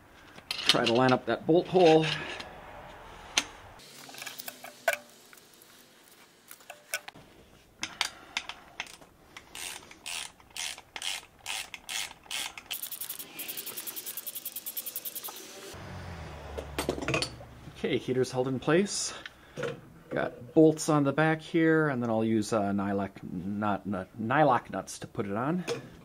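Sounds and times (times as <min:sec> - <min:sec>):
fast run of clicks: 0:12.4 - 0:15.4.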